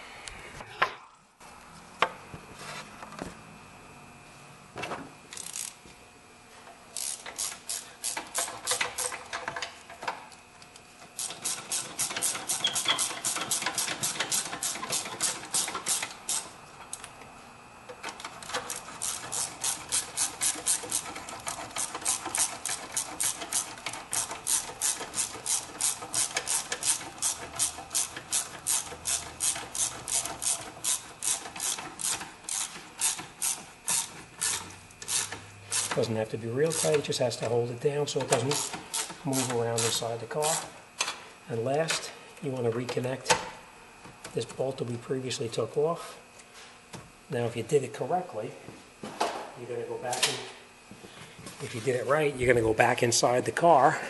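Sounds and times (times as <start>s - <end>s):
socket ratchet clicking: 18.4s - 36.0s.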